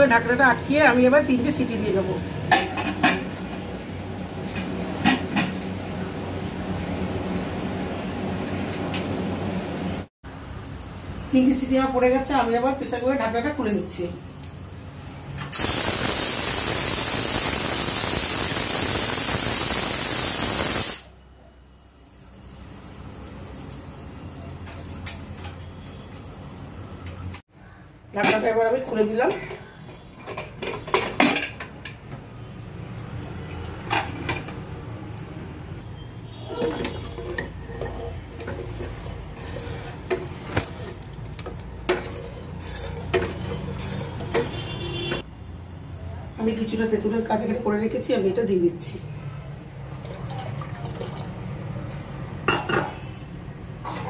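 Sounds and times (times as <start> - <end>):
steam hissing from pressure cooker: 15.5 - 21.1
ladle scraping a pot: 36.5 - 45.2.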